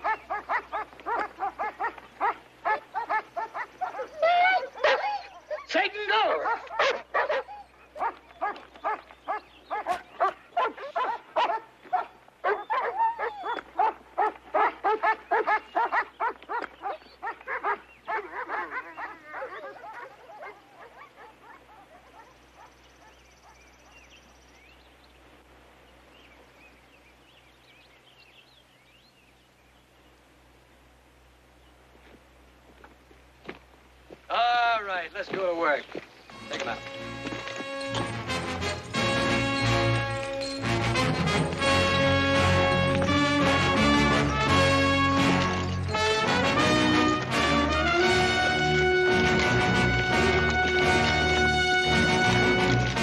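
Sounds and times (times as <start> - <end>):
dogs barking: 0.0 - 24.4, 36.6 - 51.3.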